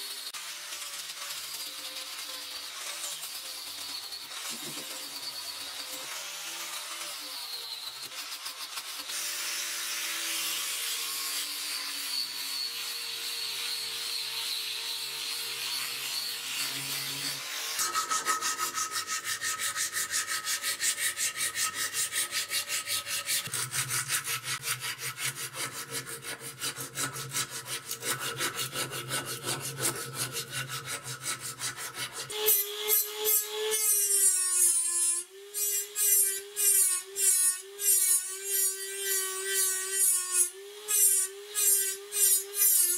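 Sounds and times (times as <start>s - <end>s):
rotary tool whining: 0.0s - 10.4s, 11.3s - 34.9s
angle grinder sanding wood: 0.0s - 42.9s
hand sanding wood: 12.7s - 32.9s.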